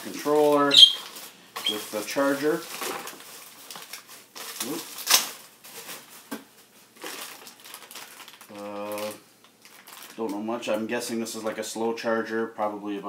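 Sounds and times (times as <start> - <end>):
plastic packaging crinkling: 0.0 - 10.4.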